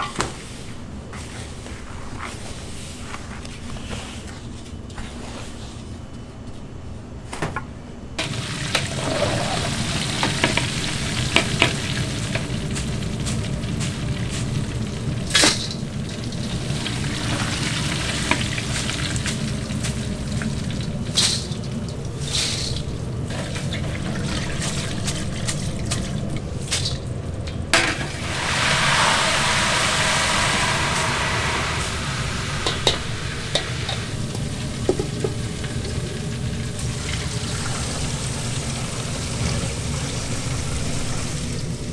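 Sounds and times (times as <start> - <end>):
meat sizzling on a grill plate: 28.2 - 39.3.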